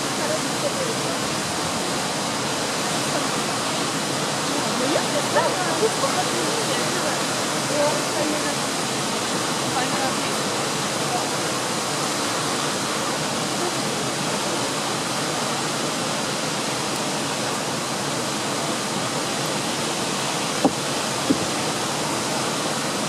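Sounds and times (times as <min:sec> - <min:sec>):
waterfall rushing: 0:00.0 - 0:23.0.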